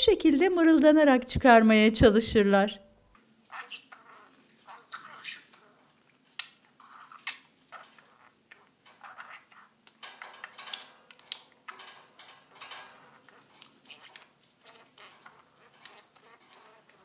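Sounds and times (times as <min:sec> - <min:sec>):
budgerigar chattering: 0:03.5 - 0:05.6.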